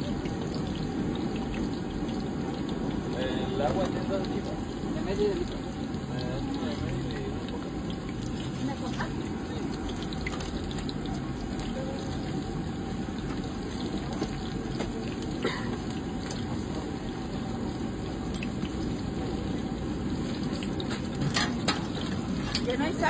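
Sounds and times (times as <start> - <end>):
food frying in hot oil: 0.0 - 23.0
utensils clicking on pots: 20.7 - 23.0.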